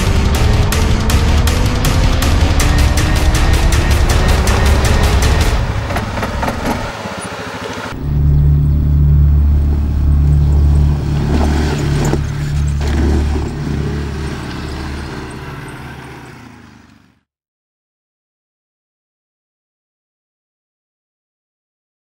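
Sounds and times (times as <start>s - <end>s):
quad bike engine running: 0.0s - 17.3s.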